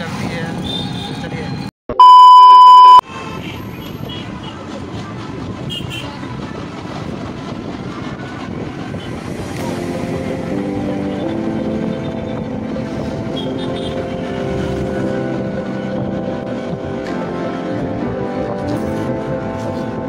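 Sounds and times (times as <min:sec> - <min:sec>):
road and wind noise: 0:00.0 - 0:20.0
test-pattern beep: 0:01.9 - 0:03.0.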